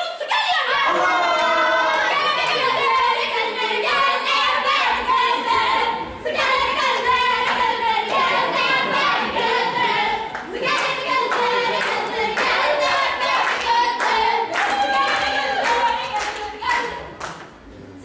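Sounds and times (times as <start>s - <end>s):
group singing a lively song: 0.3s - 17.2s
hand claps: 7.0s - 8.3s, 10.3s - 17.5s.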